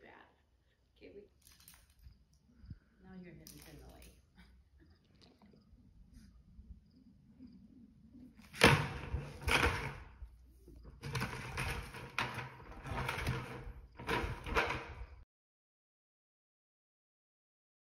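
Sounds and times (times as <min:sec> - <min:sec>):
plastic bucket scraping on dirt: 0:08.4 - 0:15.2.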